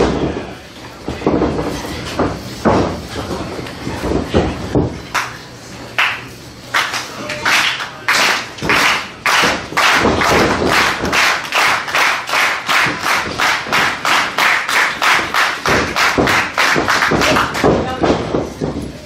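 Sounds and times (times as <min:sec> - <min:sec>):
crowd clapping in unison: 0:05.1 - 0:05.4, 0:06.0 - 0:17.8.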